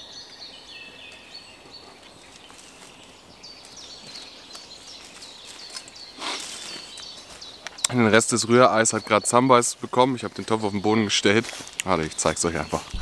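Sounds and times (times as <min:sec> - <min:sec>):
songbirds singing: 0:00.0 - 0:13.0
footsteps in dry leaves: 0:02.2 - 0:07.6, 0:11.1 - 0:12.2.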